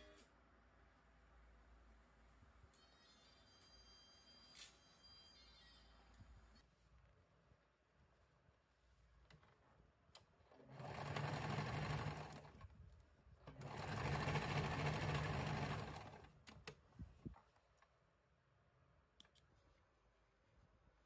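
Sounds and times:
sewing machine stitching: 10.4 - 12.8, 13.4 - 16.8.

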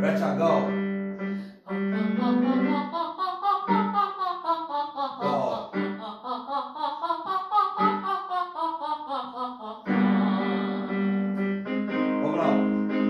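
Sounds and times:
electronic keyboard chords: 0.0 - 8.8, 9.8 - 13.0
woman singing staccato scale: 1.9 - 11.1.

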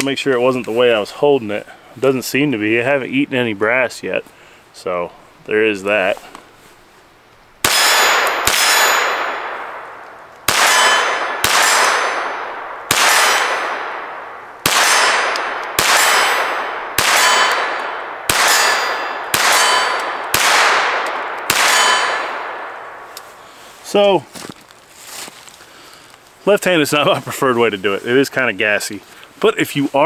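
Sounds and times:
pistol shots: 7.6 - 23.0
bullets ringing on steel target: 7.7 - 9.6, 10.5 - 14.1, 14.7 - 22.6.

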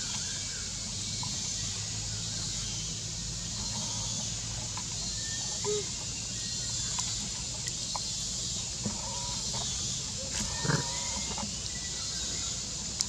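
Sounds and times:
steady outdoor hiss: 0.0 - 13.0
monkey vocal call: 5.4 - 6.0, 10.3 - 11.2.

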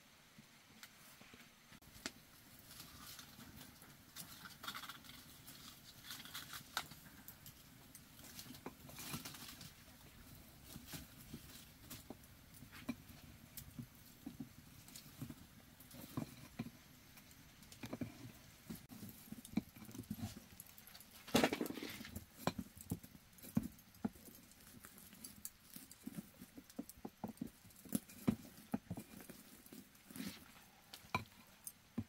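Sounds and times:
rustling scrape: 1.0 - 13.2, 17.8 - 26.7, 27.3 - 31.6.

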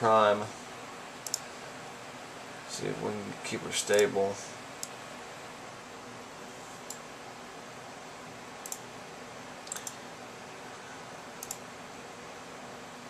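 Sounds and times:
computer fans hissing: 0.0 - 13.0
computer mouse clicking: 1.2 - 1.5, 8.6 - 8.9, 9.6 - 10.0, 11.4 - 11.6.

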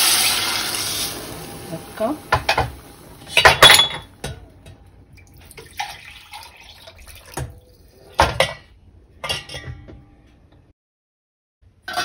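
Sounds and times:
liquid sloshing in pot: 5.2 - 8.3.

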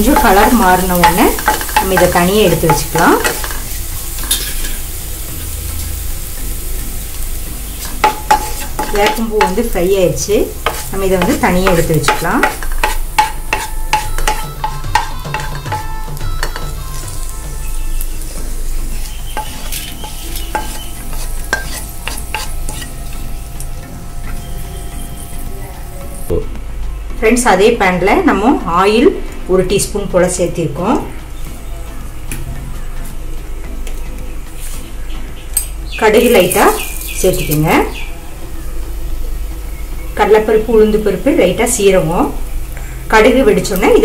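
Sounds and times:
flowers sizzling in a pan: 0.0 - 26.4, 28.6 - 44.0
spatula scraping a pan: 0.1 - 4.9, 7.8 - 9.8, 10.5 - 15.8, 18.8 - 23.1
spatula knocking against pan: 10.6 - 15.8.

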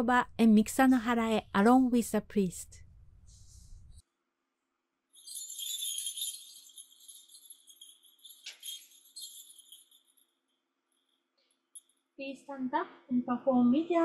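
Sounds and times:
small bells jingling: 5.2 - 12.1.

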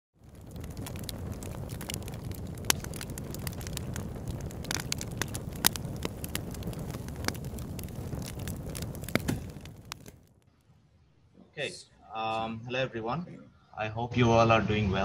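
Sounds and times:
wood fire crackling: 0.2 - 10.8.

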